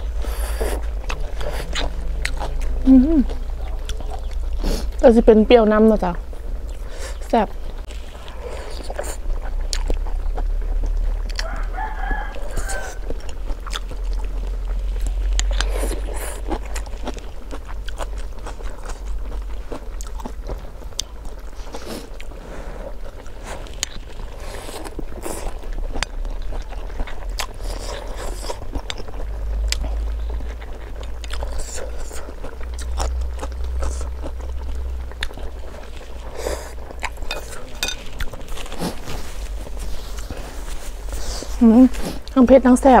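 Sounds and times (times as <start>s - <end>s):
chewing: 0.0s - 43.0s
low rumble: 0.0s - 43.0s
person slurping noodles: 4.6s - 5.0s
rooster crowing: 11.3s - 13.4s.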